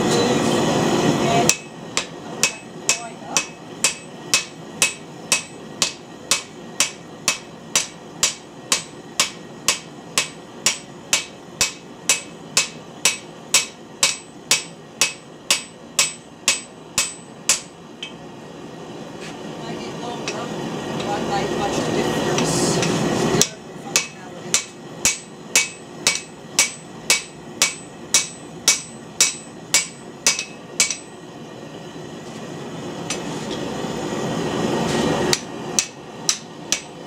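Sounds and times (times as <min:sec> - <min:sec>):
hammer striking metal on anvil: 0:01.5 - 0:18.2, 0:22.4 - 0:31.2, 0:35.3 - 0:37.0.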